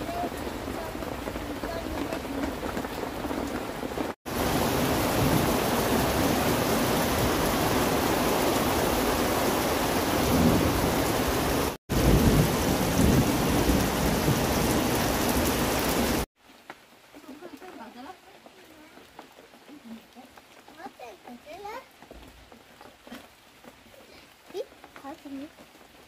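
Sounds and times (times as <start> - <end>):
heavy rain pouring: 0.0 - 26.0.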